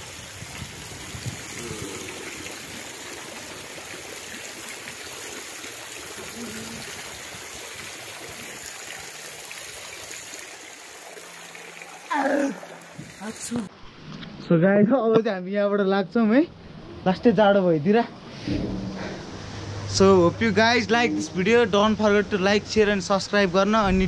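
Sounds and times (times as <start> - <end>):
water pouring and splashing: 0.0 - 13.7.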